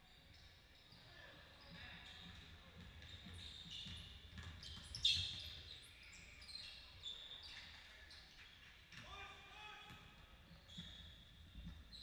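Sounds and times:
sneakers squeaking on floor: 0:00.3 - 0:08.2, 0:10.5 - 0:12.0.

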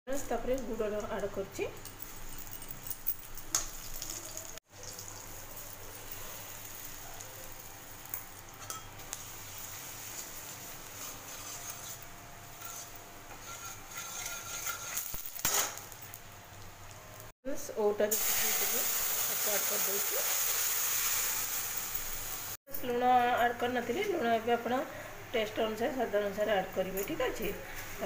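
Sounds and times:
oil sizzling in a pan: 0:03.5 - 0:17.3, 0:18.0 - 0:22.6
metal spatula scraping a pan: 0:10.1 - 0:15.8.

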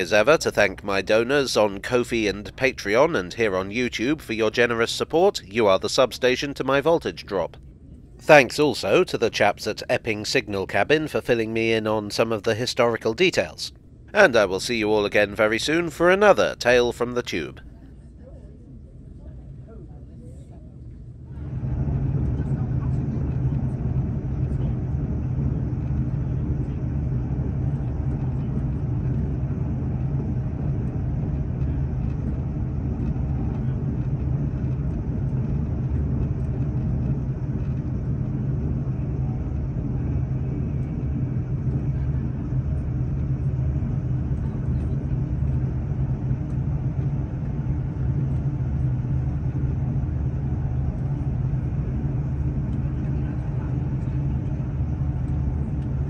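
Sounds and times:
vehicle interior rumble: 0:21.3 - 0:56.0.

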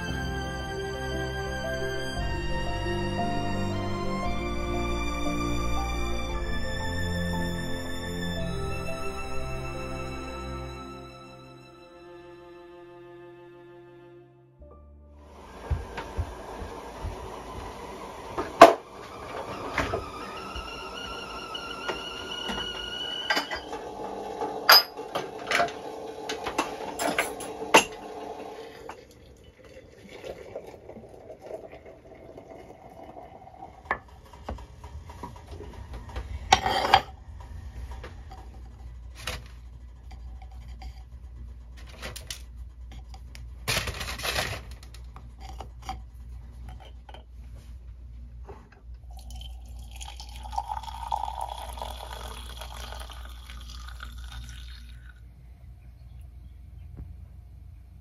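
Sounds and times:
low steady hum: 0:00.0 - 0:58.0
high steady whistling tone: 0:19.0 - 0:23.7
crockery clinking on worktop: 0:27.0 - 0:28.0.

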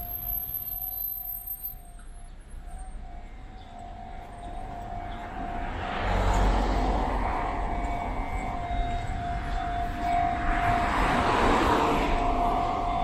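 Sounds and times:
vehicle passing: 0:04.5 - 0:13.0.

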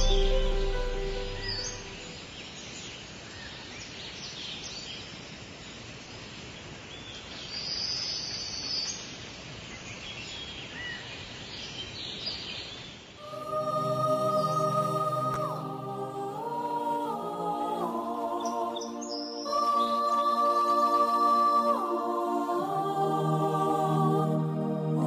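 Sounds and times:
music with sustained tones: 0:00.0 - 0:02.2, 0:13.2 - 0:25.0.

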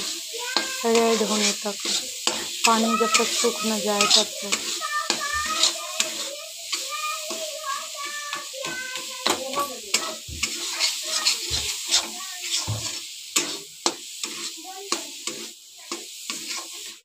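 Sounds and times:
metal spatula scraping pan: 0:00.0 - 0:17.0
sizzling: 0:00.0 - 0:17.0
spatula knocking on pan: 0:01.8 - 0:14.0.

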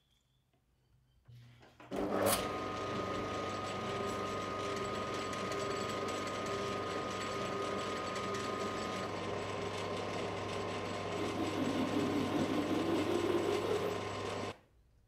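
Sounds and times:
lathe motor humming and whining: 0:01.9 - 0:14.6
lathe starting knock: 0:09.7 - 0:14.5.

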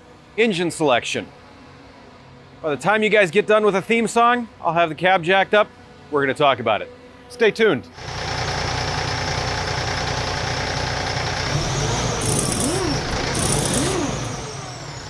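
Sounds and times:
heavy truck engine running: 0:08.0 - 0:15.0.

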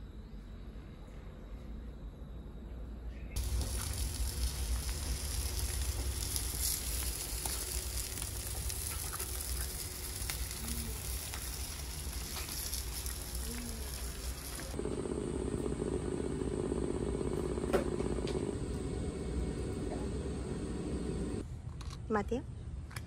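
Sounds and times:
food sizzling on a grill: 0:03.4 - 0:14.8.

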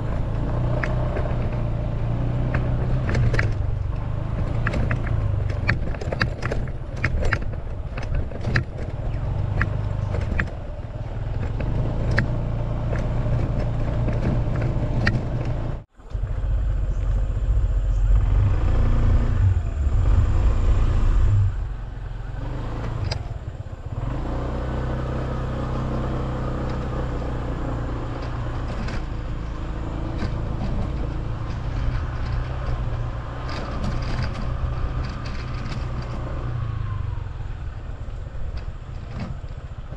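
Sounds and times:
scooter engine running: 0:00.0 - 0:39.9
clattering knocks from bumps: 0:11.3 - 0:15.8.

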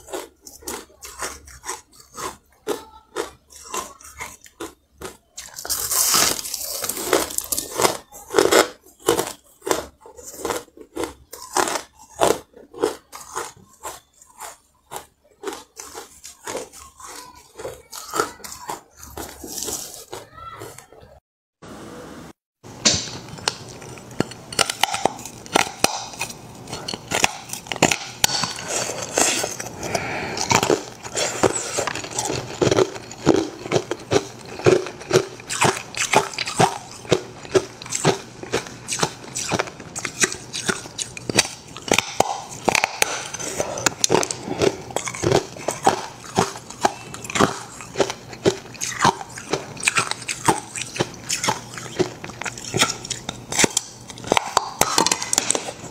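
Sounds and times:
ice crackling and popping: 0:05.4 - 0:10.5, 0:22.8 - 0:55.9.

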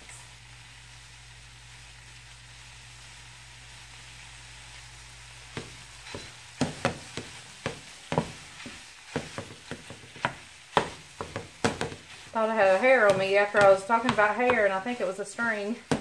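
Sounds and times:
sausage and onions sizzling: 0:00.0 - 0:16.0
meat chopper knocking pan: 0:05.5 - 0:12.2, 0:12.8 - 0:14.9, 0:15.8 - 0:16.0.

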